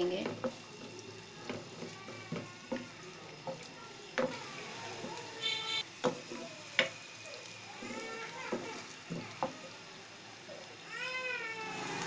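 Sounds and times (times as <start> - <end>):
onions sizzling in oil: 0.0 - 12.0
wooden spoon knocking pan: 1.4 - 4.4, 6.0 - 7.0
high-pitched tone: 5.4 - 5.8.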